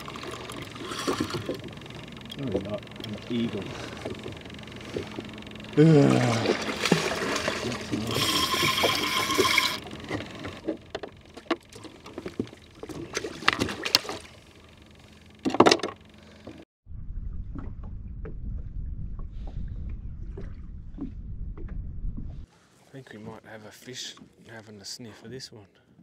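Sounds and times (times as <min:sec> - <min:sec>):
fish splashing: 0:06.0 - 0:14.5.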